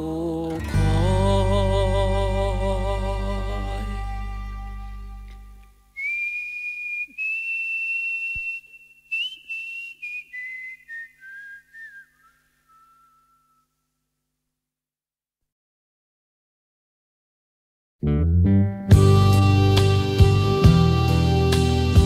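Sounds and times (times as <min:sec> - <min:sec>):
person whistling a tune: 0:06.0 - 0:13.7.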